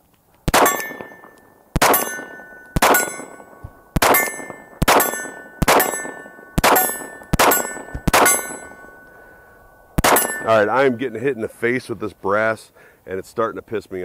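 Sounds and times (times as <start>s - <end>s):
pistol shots: 0.5s - 9.0s, 10.0s - 11.0s
steel target clanging: 0.5s - 11.5s.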